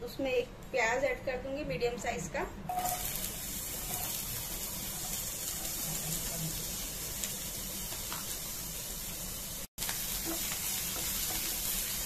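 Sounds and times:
onion sizzling in hot oil: 2.7s - 12.0s.

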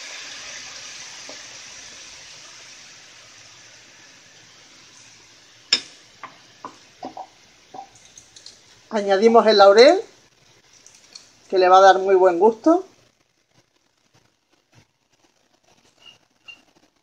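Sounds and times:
liquid sizzling in a frying pan: 0.0s - 17.0s.

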